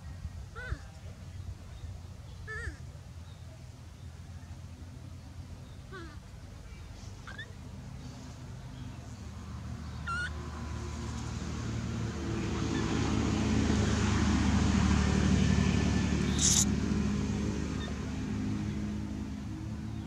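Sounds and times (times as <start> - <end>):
vehicle engine passing by: 6.9 - 20.0
brief high hiss: 16.3 - 16.7
short high chirp: 16.3 - 16.7.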